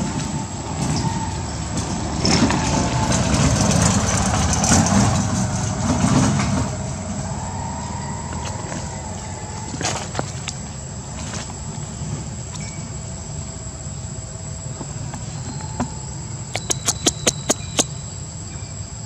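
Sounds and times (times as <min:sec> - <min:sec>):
high-pitched insect drone: 0:00.0 - 0:19.0
sharp clicks: 0:16.5 - 0:17.9.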